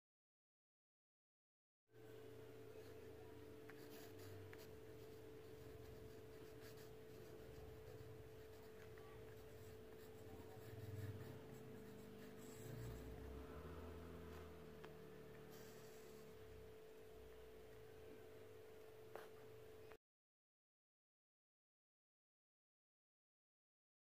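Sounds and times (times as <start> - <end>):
steady low hum: 2.0 - 20.0
pencil scratching on paper: 3.7 - 16.5.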